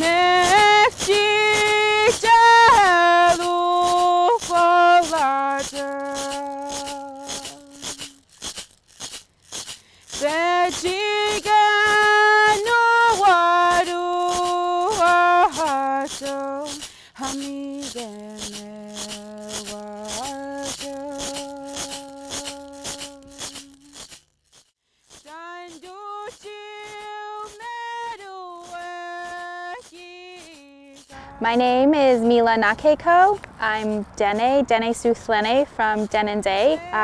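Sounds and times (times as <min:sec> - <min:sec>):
person singing held notes: 0:00.0 - 0:08.3, 0:10.1 - 0:24.1, 0:25.3 - 0:31.8
shaken rattle beat: 0:00.0 - 0:31.7, 0:35.4 - 0:37.0.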